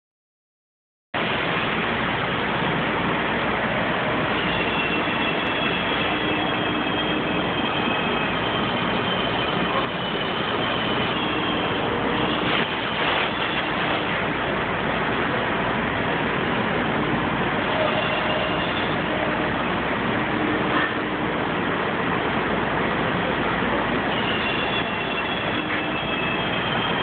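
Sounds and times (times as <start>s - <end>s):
metal lathe running: 2.1s - 27.0s
faint high whine: 3.6s - 14.2s.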